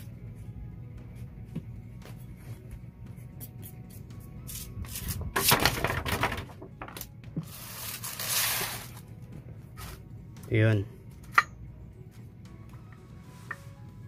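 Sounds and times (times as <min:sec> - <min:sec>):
metal rubbing on sandpaper: 0:07.5 - 0:09.0.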